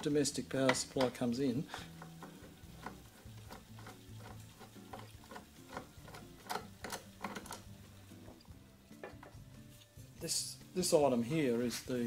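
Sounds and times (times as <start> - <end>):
screwdriver clicking and tapping: 4.9 - 7.7.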